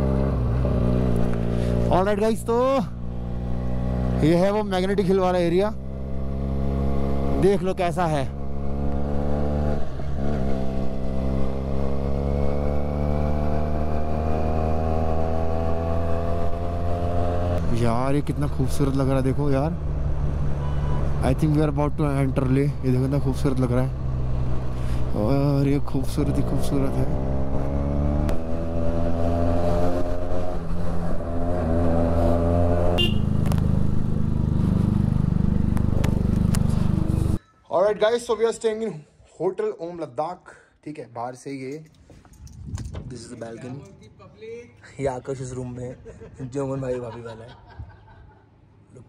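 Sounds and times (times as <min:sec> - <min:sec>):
motorcycle engine cruising: 0:00.0 - 0:37.4
motorcycle engine running: 0:31.4 - 0:37.4.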